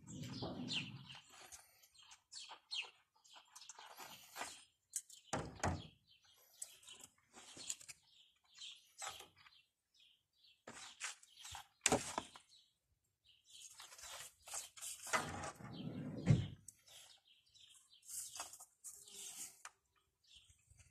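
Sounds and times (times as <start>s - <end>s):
metal knocks and scrapes: 0.0s - 1.4s
birds chirping: 0.0s - 20.9s.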